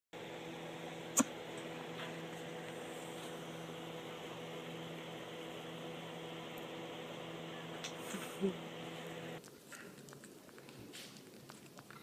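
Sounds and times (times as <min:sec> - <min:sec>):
low hum: 0:00.2 - 0:09.4.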